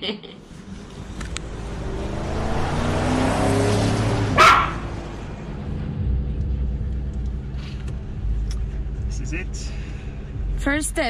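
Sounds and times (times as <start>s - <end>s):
low hum: 0.4s - 11.0s
low steady rumble: 5.0s - 11.0s.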